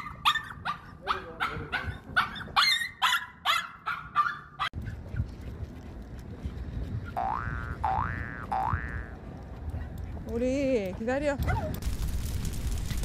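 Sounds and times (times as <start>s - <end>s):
small dog barking: 0.0s - 4.8s.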